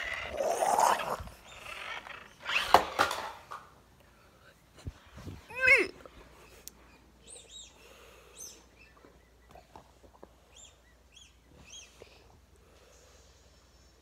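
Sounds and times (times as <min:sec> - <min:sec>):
small bird chirping: 0:00.0 - 0:02.6, 0:06.4 - 0:12.3.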